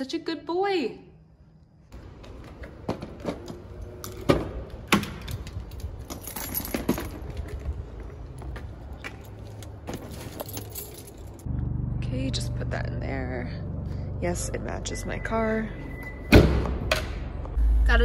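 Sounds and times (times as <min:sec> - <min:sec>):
low steady rumble: 0:10.8 - 0:16.1, 0:17.3 - 0:18.0.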